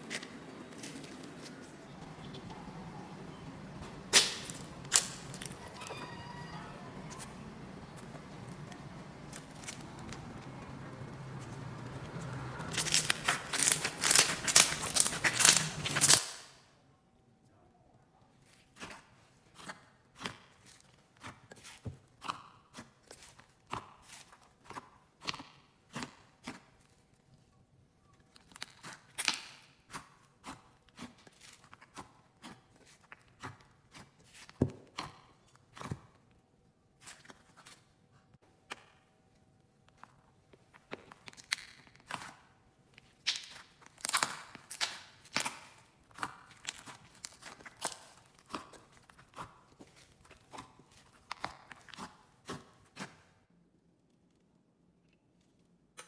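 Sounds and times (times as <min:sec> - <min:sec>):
slime popping and crackling: 0:04.1 - 0:05.7, 0:12.6 - 0:16.6, 0:41.1 - 0:52.2.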